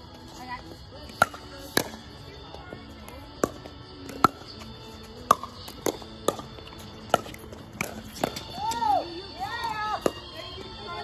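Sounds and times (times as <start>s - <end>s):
music: 0.0s - 11.0s.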